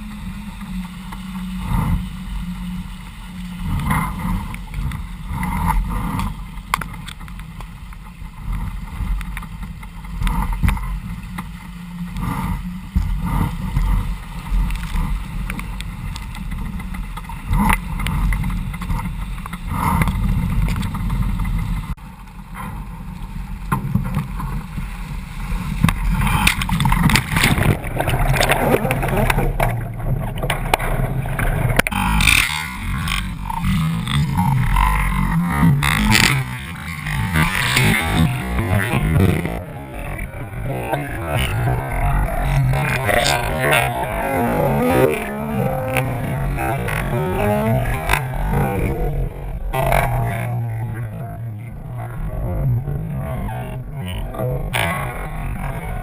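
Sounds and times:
steady low rumble: 0.0s - 56.0s
water rushing along boat hull: 0.0s - 56.0s
spray and waves slapping: 23.2s - 52.3s.

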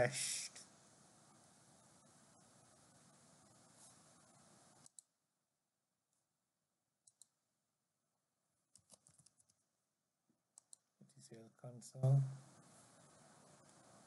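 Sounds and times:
low hiss: 0.0s - 5.1s, 10.6s - 14.0s
computer mouse clicks: 4.8s - 5.1s, 7.0s - 7.3s, 8.7s - 9.6s, 10.6s - 10.9s.

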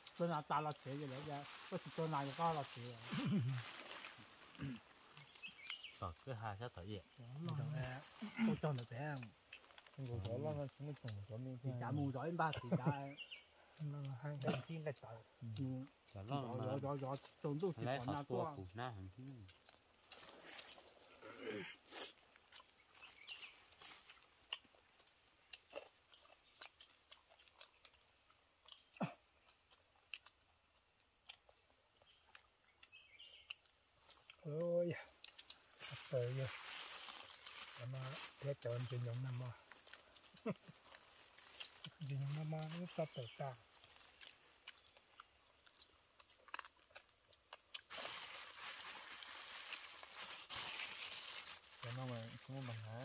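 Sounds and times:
steady hiss: 0.0s - 4.8s, 35.8s - 39.6s
people chewing: 0.0s - 53.0s
plastic bags crinkling: 35.8s - 38.5s, 47.9s - 53.0s.

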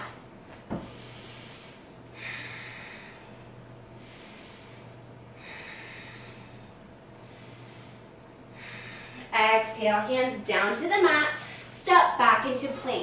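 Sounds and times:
faint low hum: 0.0s - 13.0s
woman breathing: 0.7s - 9.4s.

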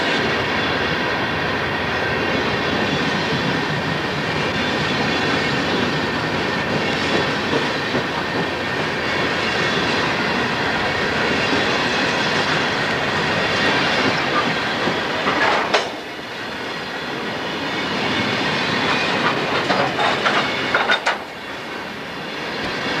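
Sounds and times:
rail cars rolling on rails: 0.0s - 23.0s
wheels clacking over rail joints: 11.2s - 16.1s, 18.2s - 21.4s.

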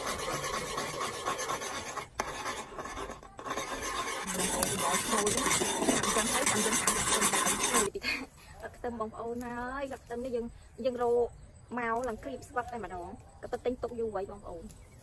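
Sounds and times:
coconut milk boiling and frothing: 0.0s - 7.9s
metal spoon scraping a pot: 0.0s - 7.9s.

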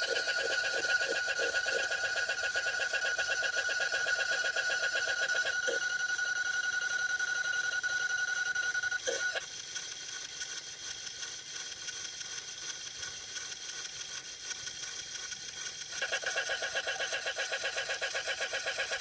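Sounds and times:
fast pulsing stutter: 0.0s - 5.9s, 10.2s - 19.0s.

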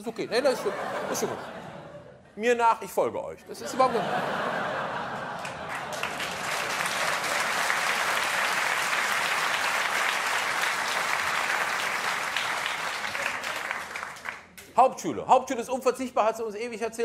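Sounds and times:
audience applauding: 4.5s - 14.6s.

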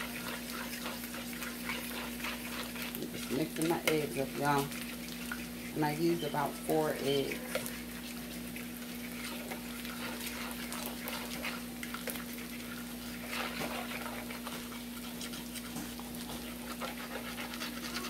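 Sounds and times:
eggs whisked in a bowl: 0.0s - 18.0s.

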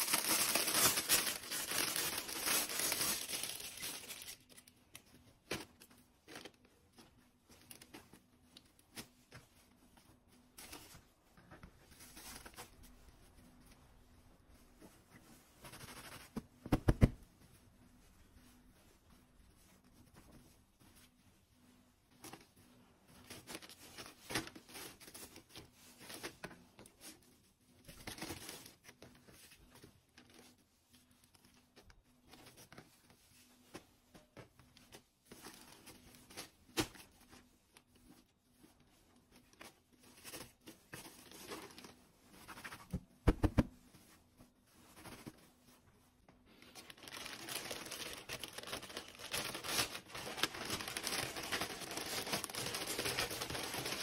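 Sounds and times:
plastic packaging crinkling: 0.0s - 4.8s, 46.6s - 54.0s.

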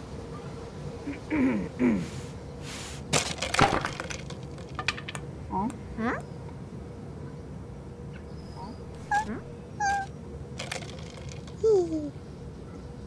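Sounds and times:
rubbish scraped and dumped: 2.2s - 4.8s
clattering knocks and cracks: 3.1s - 5.3s
short rising squeaks: 8.6s - 10.1s
cartoon falling vocal sounds: 9.0s - 10.1s.

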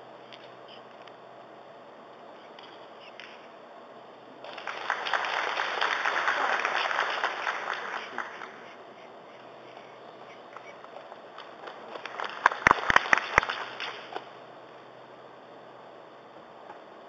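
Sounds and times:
audience applauding: 4.4s - 8.8s, 11.3s - 14.1s.

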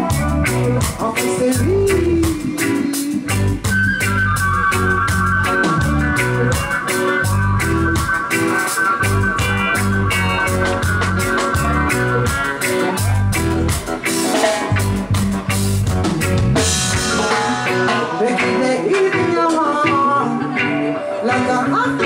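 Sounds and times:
woman singing: 0.0s - 3.6s, 17.2s - 22.0s
reggae band playing: 0.0s - 22.0s.

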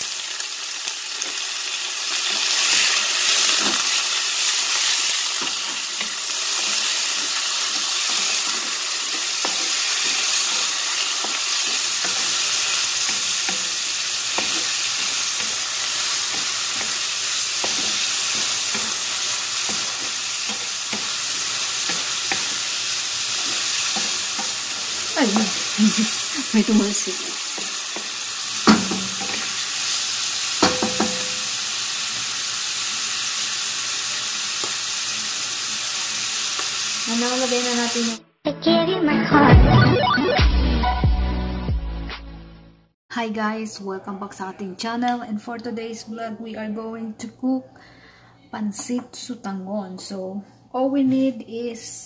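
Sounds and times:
food sizzling in hot oil: 0.0s - 38.2s
wooden spatula scraping a wok: 2.4s - 25.8s.

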